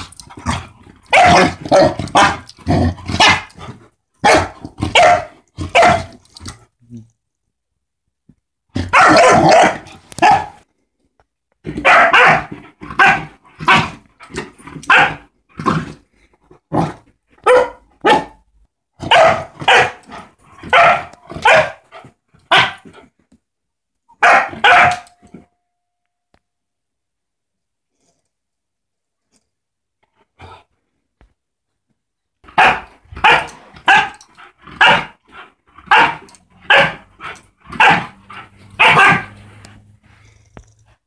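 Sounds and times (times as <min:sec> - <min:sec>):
puppy barking: 0:01.1 - 0:02.5, 0:03.1 - 0:03.5, 0:04.2 - 0:06.2, 0:08.8 - 0:10.6, 0:11.8 - 0:13.9, 0:14.9 - 0:15.3, 0:17.4 - 0:18.4, 0:19.0 - 0:20.0, 0:20.6 - 0:21.8, 0:22.5 - 0:22.8, 0:24.2 - 0:25.2, 0:32.5 - 0:34.2, 0:34.8 - 0:35.2, 0:35.9 - 0:37.1, 0:37.7 - 0:39.4.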